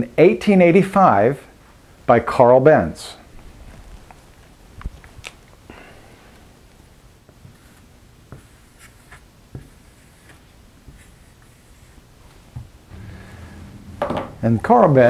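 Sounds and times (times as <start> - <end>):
marker writing on whiteboard: 7.3 - 12.1.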